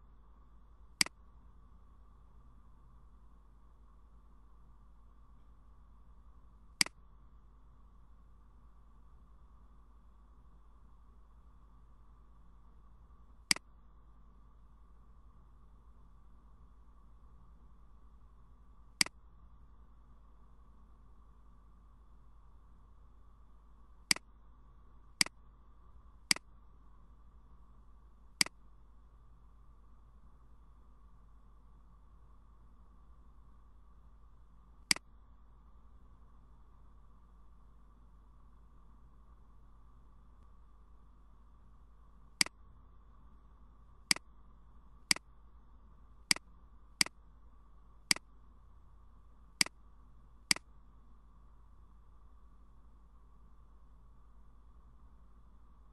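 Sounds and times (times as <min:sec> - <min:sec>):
faint steady background hum: 0:00.0 - 0:55.9
computer mouse clicks: 0:26.3 - 0:26.5, 0:46.3 - 0:47.2, 0:48.1 - 0:48.3.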